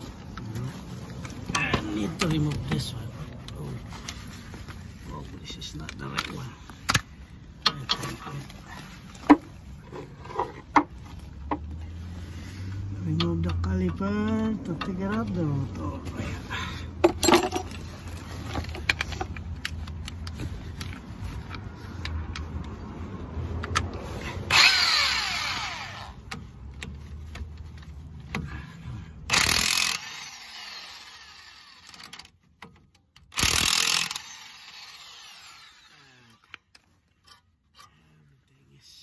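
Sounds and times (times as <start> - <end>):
ratchet wrench rasping: 23.7 - 28.5, 29.2 - 32.3, 33.1 - 37.9
wrench metal clicks and clinks: 29.3 - 37.9.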